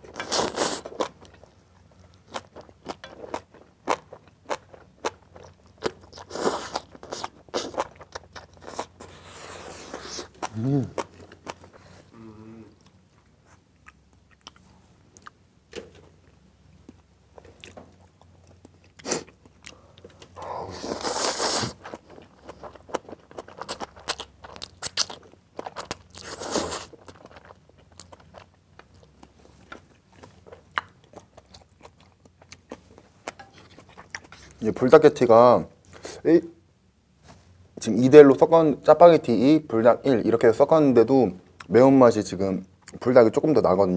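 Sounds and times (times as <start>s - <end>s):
chewing and crunching: 0.0s - 12.1s, 12.8s - 15.4s, 21.5s - 34.6s
loud noodle slurps: 20.7s - 21.8s.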